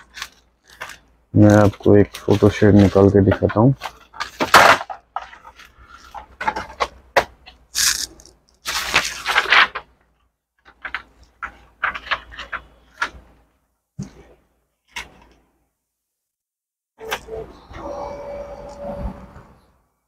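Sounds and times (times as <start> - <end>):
newspaper rustling: 0.0 - 4.4, 7.8 - 10.0, 10.6 - 13.2.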